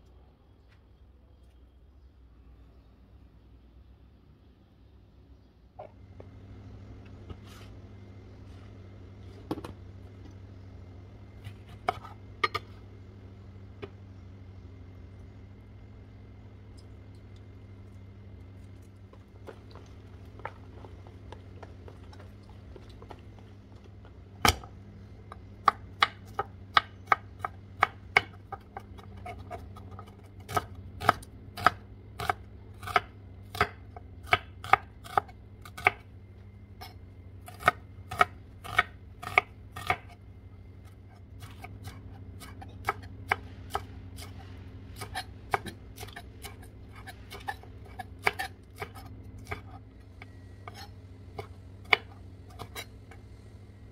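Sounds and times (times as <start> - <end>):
knife chopping on wooden board: 25.3 - 36.0, 37.5 - 40.2.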